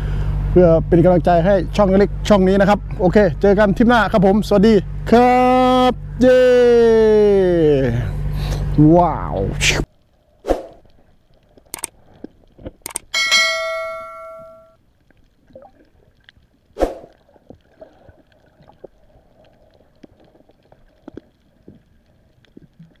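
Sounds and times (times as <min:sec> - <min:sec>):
sharp clicks: 0:11.6 - 0:12.0, 0:12.8 - 0:13.2
small bell ringing: 0:13.1 - 0:14.8
faint ticks: 0:14.9 - 0:23.0.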